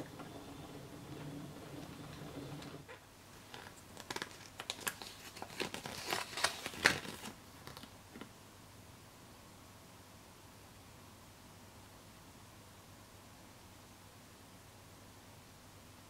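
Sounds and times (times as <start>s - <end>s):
paper leaflet crinkling: 3.4s - 8.3s.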